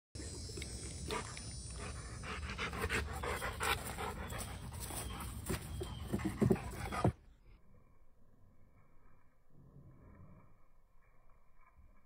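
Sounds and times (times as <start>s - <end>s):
dog panting: 1.0s - 7.2s.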